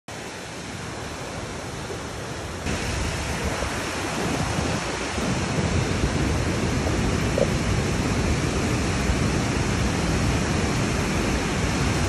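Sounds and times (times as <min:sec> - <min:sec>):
river and waterfall roaring: 0:00.1 - 0:12.0.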